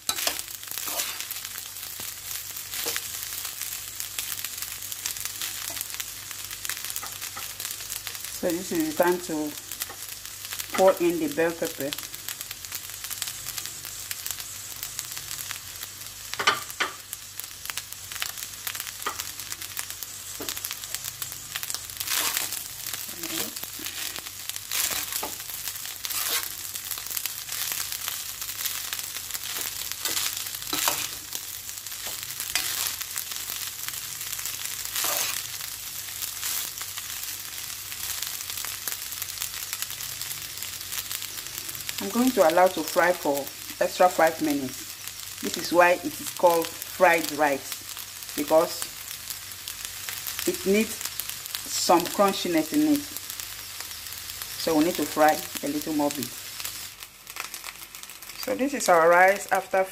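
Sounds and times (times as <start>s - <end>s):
metal spoon scraping a pan: 0.0s - 1.4s, 22.0s - 26.6s, 29.4s - 31.3s, 32.0s - 33.0s, 35.0s - 35.4s
rice sizzling in a frying pan: 0.0s - 59.9s.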